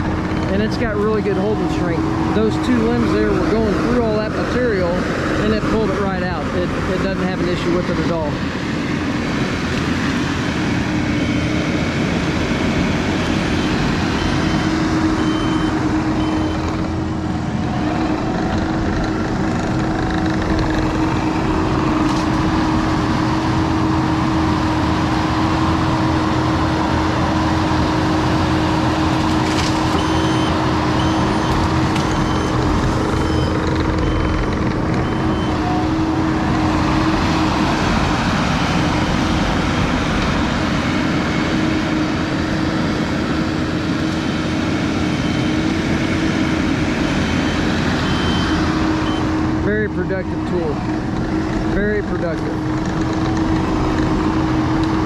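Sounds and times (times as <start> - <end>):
diesel engine running under load: 0.0 - 55.0
backup alarm beeping: 13.4 - 16.8, 30.0 - 36.0, 47.2 - 49.4.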